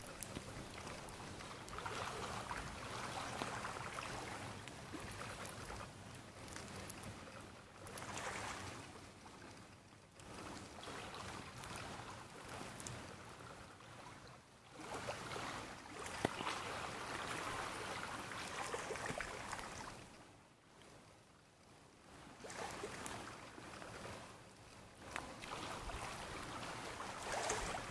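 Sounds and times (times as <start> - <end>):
waves washing against stony shore: 25.0 - 27.9.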